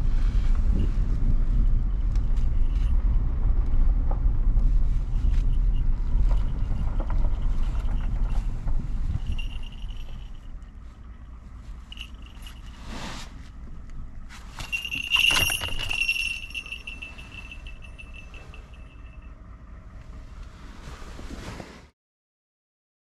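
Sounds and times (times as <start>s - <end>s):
bell ringing: 9.2s - 10.5s, 11.9s - 12.8s, 14.6s - 19.4s.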